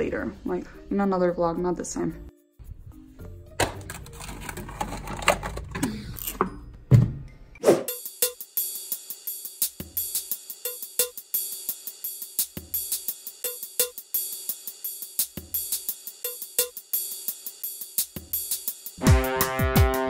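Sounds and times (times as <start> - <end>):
drum-machine beat: 7.8 - 20.0.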